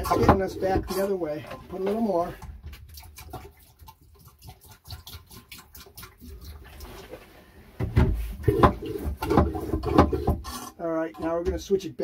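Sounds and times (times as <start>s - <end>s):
toilet pump handle strokes: 0.0s - 1.9s, 8.4s - 11.4s
liquid trickling into toilet bowl: 0.0s - 7.2s, 8.4s - 11.4s.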